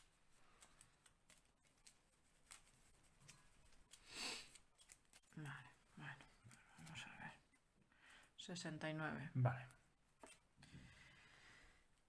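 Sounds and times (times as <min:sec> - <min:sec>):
cards rustling: 0:00.0 - 0:05.7.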